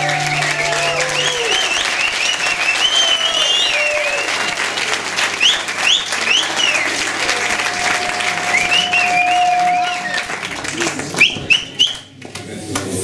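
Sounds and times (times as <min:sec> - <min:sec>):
audience applauding: 0:00.0 - 0:13.0
high-pitched calls: 0:05.4 - 0:10.4.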